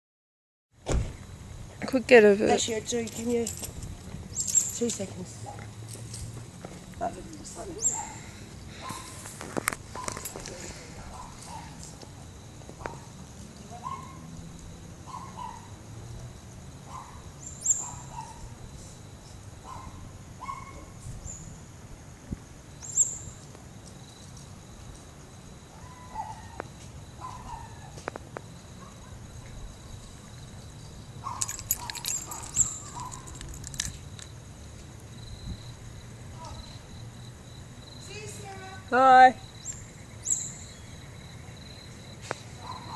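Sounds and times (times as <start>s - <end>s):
high insect drone: 1.0s - 42.9s
flurry of clicks and chirps: 2.9s - 6.3s, 22.8s - 35.7s, 39.4s - 42.9s.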